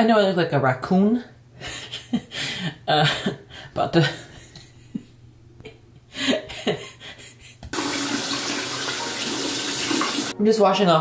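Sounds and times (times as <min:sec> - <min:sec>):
faucet water running into basin: 0:07.7 - 0:10.4.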